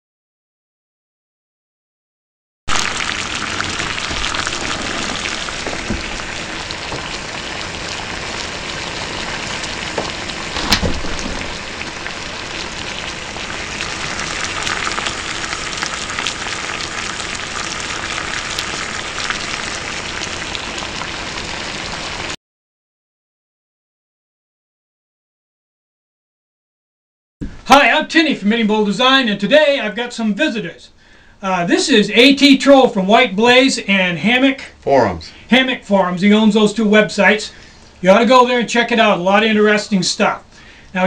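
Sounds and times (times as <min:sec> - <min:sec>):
water boiling in metal pot: 0:02.7 - 0:22.4.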